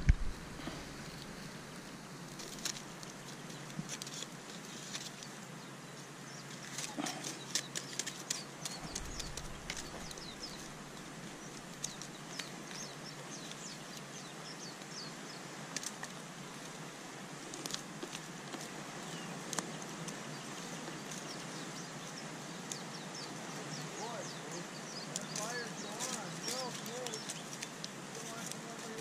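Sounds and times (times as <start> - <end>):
sticks clicking on embers: 2.3 - 5.4, 6.6 - 14.1, 15.7 - 16.2, 17.5 - 18.7, 25.0 - 29.0.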